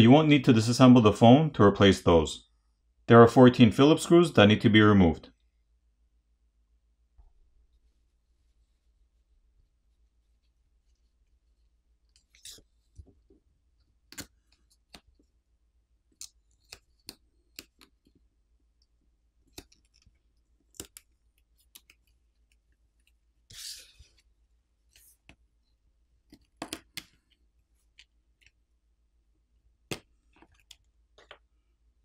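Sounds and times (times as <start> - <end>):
faint plastic clicks and taps: 29.9 - 31.5.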